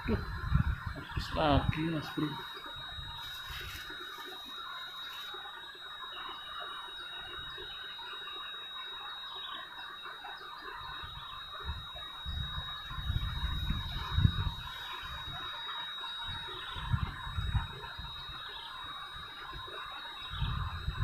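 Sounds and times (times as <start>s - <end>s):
chorus of wild animal calls: 0.0s - 21.0s
thin high steady tone: 0.0s - 21.0s.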